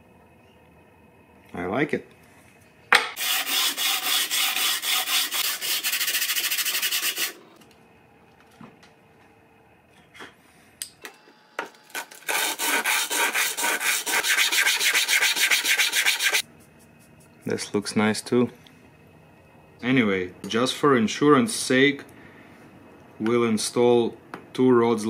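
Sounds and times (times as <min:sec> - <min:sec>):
rubbing on sandpaper: 0:03.2 - 0:07.4, 0:12.3 - 0:17.2.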